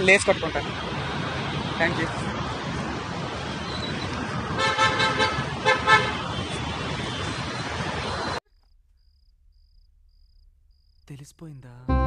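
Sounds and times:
street traffic noise: 0:00.0 - 0:08.4
vehicle horn toots: 0:04.6 - 0:07.2.

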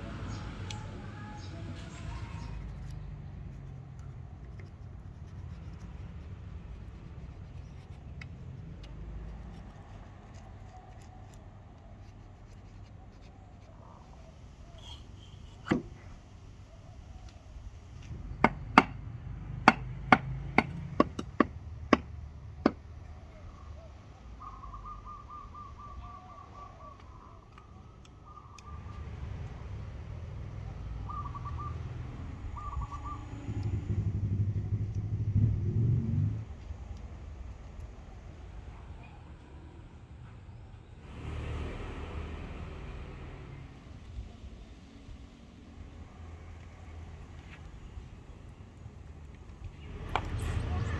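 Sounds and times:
low steady rumble: 0:28.8 - 0:39.0, 0:39.6 - 0:50.9.

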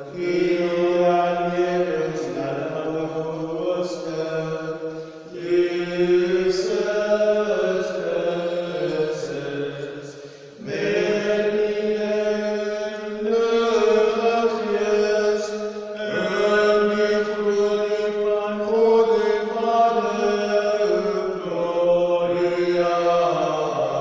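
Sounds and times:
voices singing slow chant: 0:00.0 - 0:24.0.

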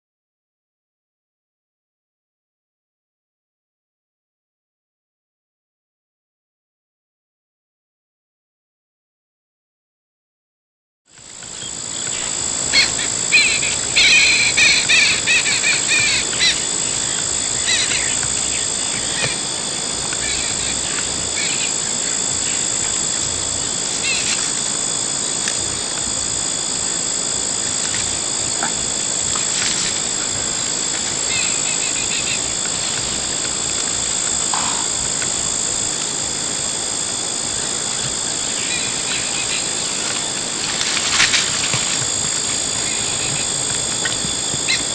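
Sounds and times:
high-pitched insect trilling: 0:11.2 - 0:44.9
bird calls and chirps: 0:11.5 - 0:19.4, 0:20.1 - 0:22.8, 0:24.0 - 0:24.5, 0:31.3 - 0:32.6, 0:38.6 - 0:39.8, 0:42.8 - 0:44.9.

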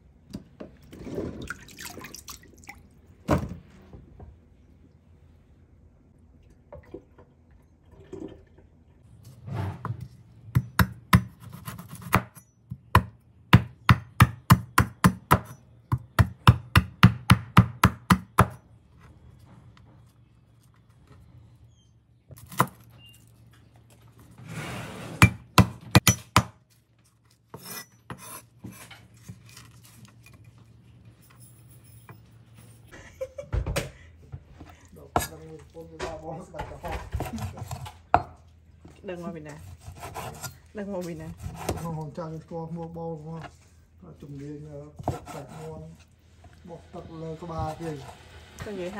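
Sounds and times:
cleaver chopping on wooden board: 0:10.6 - 0:12.4, 0:13.0 - 0:18.6, 0:25.2 - 0:26.6.

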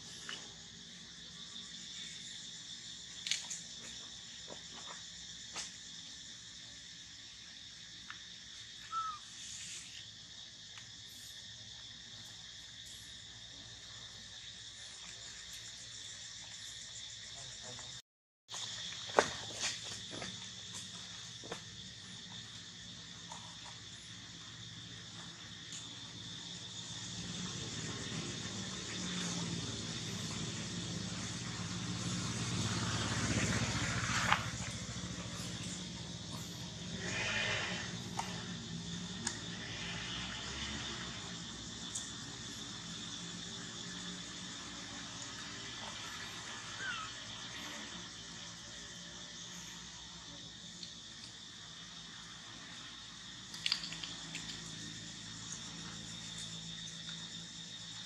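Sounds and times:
insects buzzing: 0:00.0 - 0:58.0
vehicle engine humming: 0:26.9 - 0:41.1.

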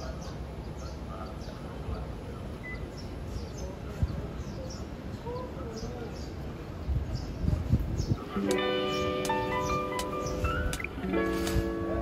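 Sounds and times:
city street rumble: 0:00.0 - 0:12.0
small birds chirping: 0:00.0 - 0:12.0.

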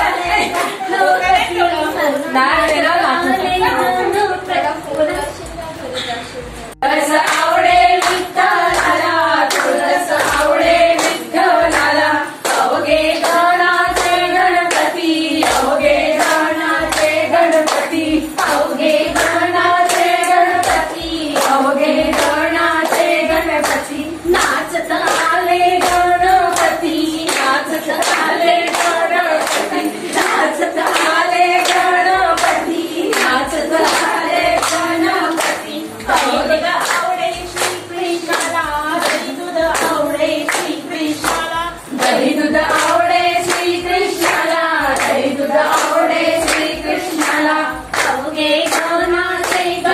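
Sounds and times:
women singing in unison: 0:00.0 - 0:05.2, 0:06.7 - 0:49.9
rhythmic hand claps: 0:00.0 - 0:06.1, 0:06.7 - 0:49.9.

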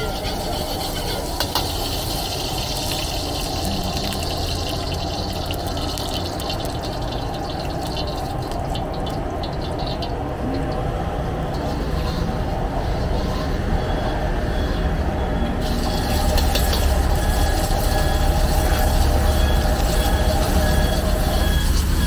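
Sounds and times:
oil sizzling in wok: 0:00.0 - 0:10.1, 0:15.6 - 0:22.0
gas burner rushing: 0:15.6 - 0:22.0
metal ladle knocking wok: 0:16.2 - 0:17.0.

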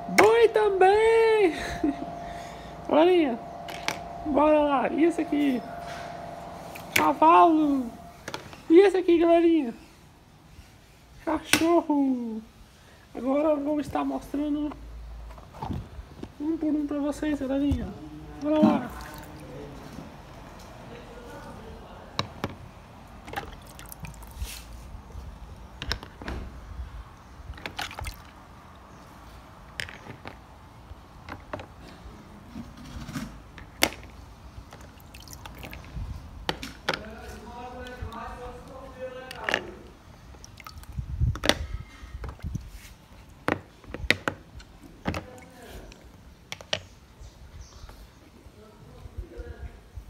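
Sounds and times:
low handling rumble: 0:00.0 - 0:09.4
water dripping and splashing: 0:18.4 - 0:19.6, 0:23.2 - 0:24.4, 0:27.6 - 0:29.1, 0:34.7 - 0:36.0, 0:40.2 - 0:41.2, 0:42.2 - 0:43.4.

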